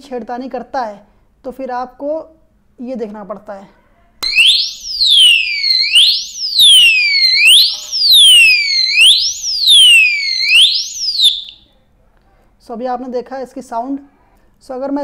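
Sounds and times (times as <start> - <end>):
electronic alarm siren: 4.2 - 11.6.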